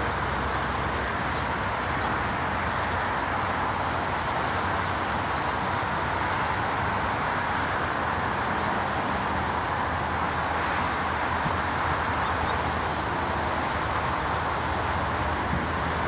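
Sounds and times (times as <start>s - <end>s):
distant train rumble and hiss: 0.0s - 16.0s.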